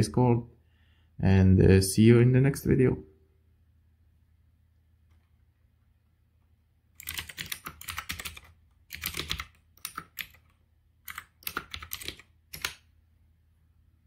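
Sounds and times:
typing on a computer keyboard: 7.0 - 12.8.

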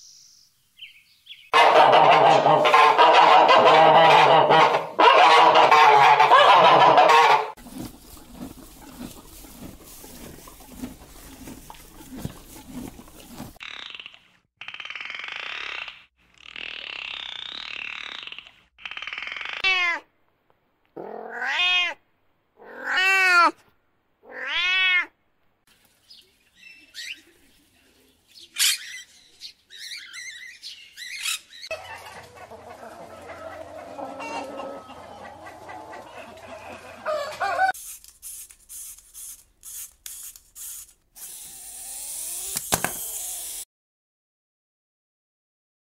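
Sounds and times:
meow-like animal calls: 21.0 - 22.0, 22.6 - 23.6, 24.2 - 25.1.

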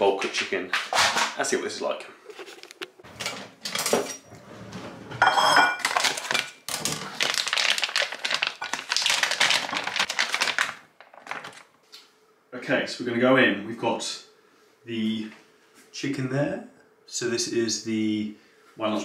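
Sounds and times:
plastic crinkling and rustling: 5.8 - 12.1.

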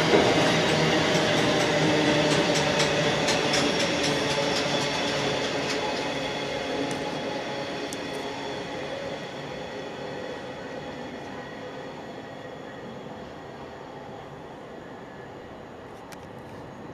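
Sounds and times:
freight train rolling past: 0.0 - 15.9
train wheel clicks: 0.1 - 6.2.

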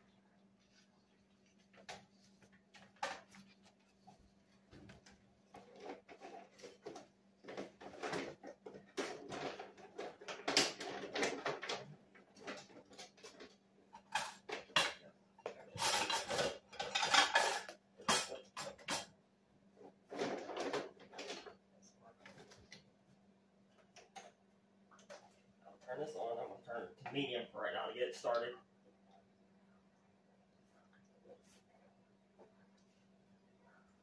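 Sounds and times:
kitchen utensils and dishes clattering: 4.8 - 19.1, 20.0 - 21.6.

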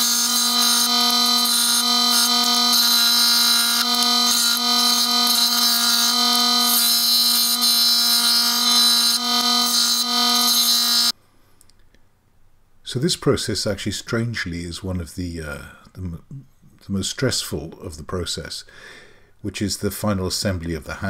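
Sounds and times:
scroll saw cutting wood: 0.0 - 11.1.

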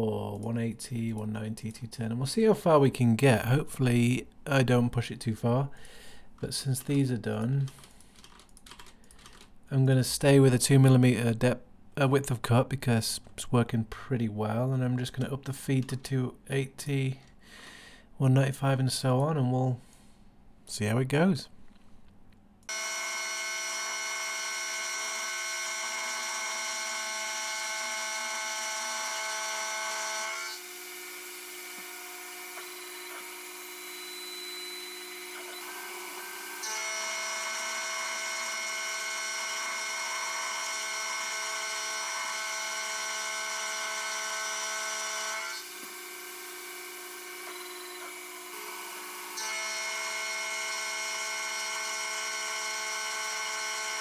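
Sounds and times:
milling machine cutting metal whine: 22.7 - 30.8.

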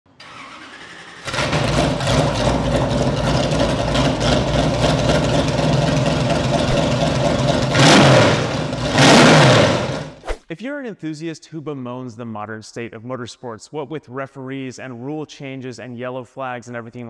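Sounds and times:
race engine starting and idling: 0.1 - 10.2.

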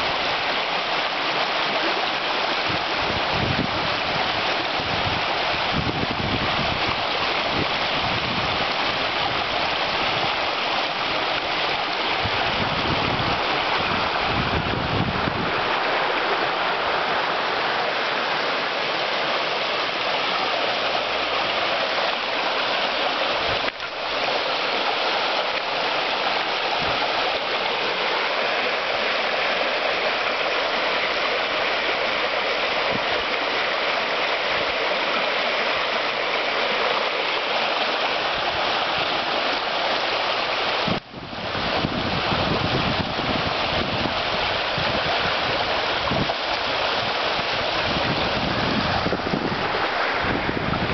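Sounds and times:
river rushing over rocks: 0.0 - 50.9.

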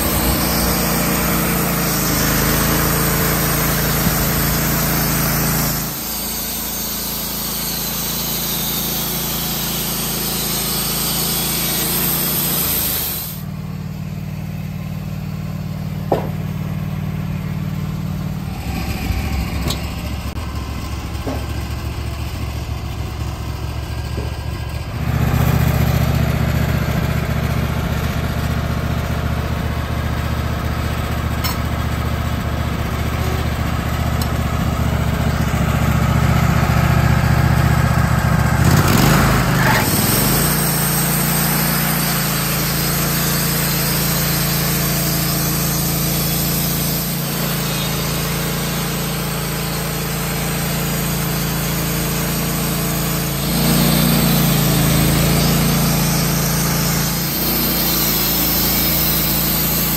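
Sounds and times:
band blade sawing wood: 0.0 - 13.5, 38.6 - 59.9
sawmill engine running: 0.0 - 59.9
light knocks: 16.1 - 16.5.

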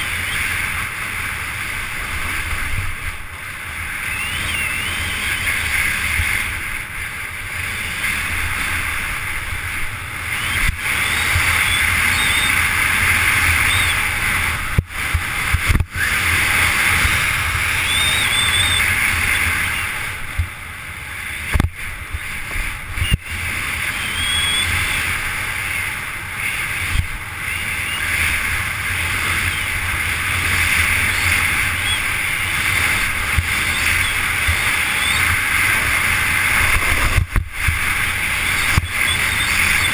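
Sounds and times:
wind rumbling on microphone: 0.0 - 39.9
snowboard scraping on snow: 32.6 - 39.9.

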